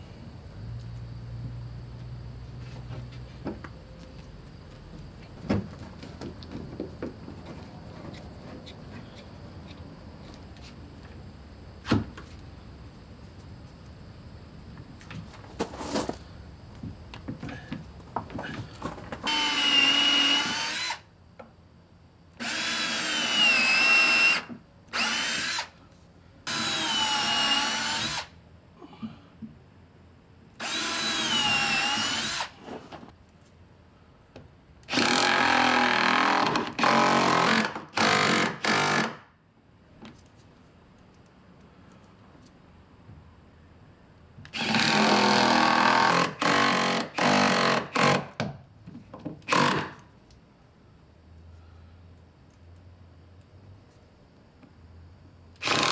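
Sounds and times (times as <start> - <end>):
cordless drill boring into wood: 19.3 - 21.0, 22.4 - 25.7, 26.5 - 28.3, 30.6 - 32.6, 34.9 - 39.2, 44.6 - 48.2, 49.5 - 49.9, 55.6 - 55.9.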